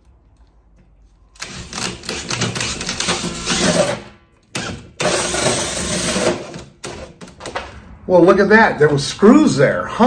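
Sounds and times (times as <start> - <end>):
drill with hole saw cutting drywall: 1.4 - 7.2.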